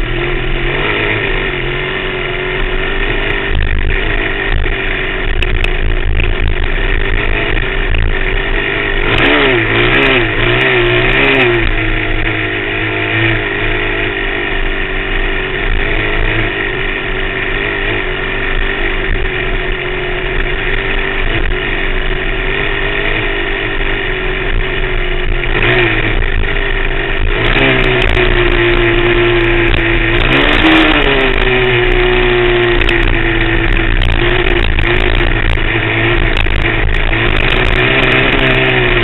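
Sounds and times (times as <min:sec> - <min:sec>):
dirt bike engine revving: 0:00.0 - 0:39.0.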